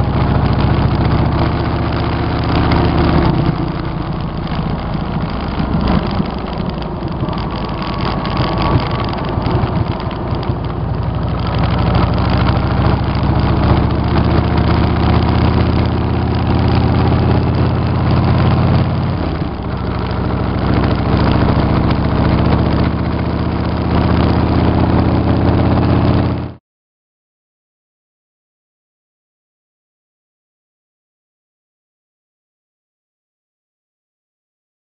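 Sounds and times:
motorcycle engine running: 0:00.0 - 0:26.6.

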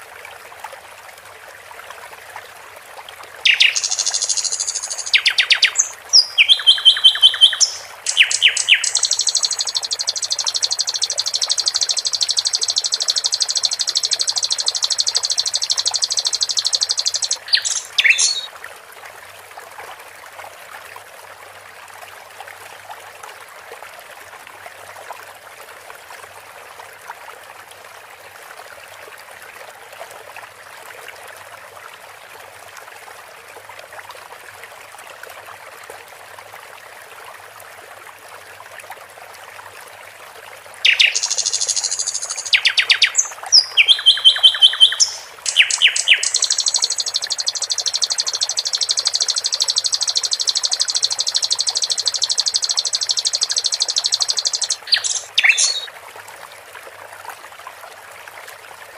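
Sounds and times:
trickling stream: 0:00.0 - 0:58.9
bird chirps and trills: 0:03.4 - 0:18.5, 0:40.8 - 0:55.9.

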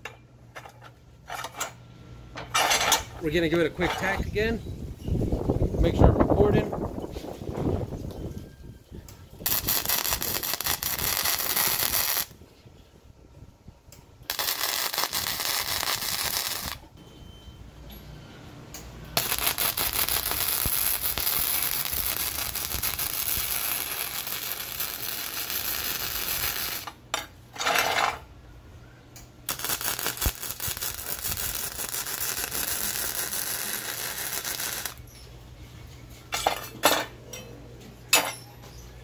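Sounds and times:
welding arc crackling: 0:09.4 - 0:12.3, 0:14.3 - 0:16.9, 0:19.2 - 0:27.0, 0:29.5 - 0:35.0.

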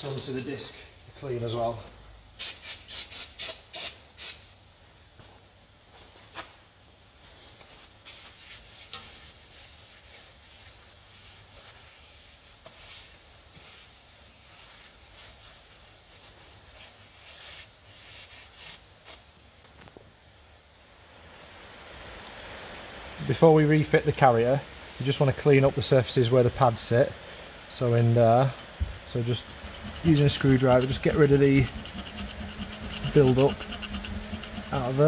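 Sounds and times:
aerosol spray hissing: 0:02.4 - 0:04.5
cloth rubbing on metal disc: 0:07.2 - 0:19.3, 0:28.4 - 0:35.0.

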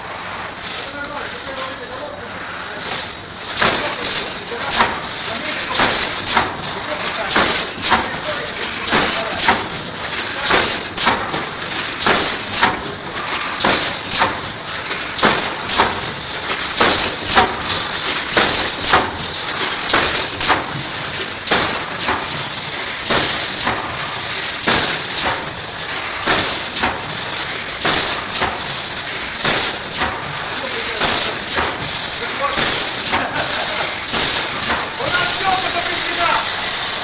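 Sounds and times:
welding machine sharp clacks: 0:00.0 - 0:37.0
steady high hiss: 0:11.9 - 0:37.0.

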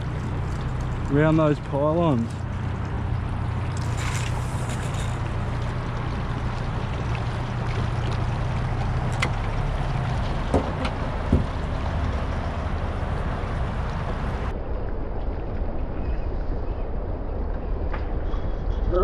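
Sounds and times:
outboard motor running: 0:00.0 - 0:14.5
water wash: 0:00.0 - 0:19.0
light knocks: 0:10.4 - 0:11.6.

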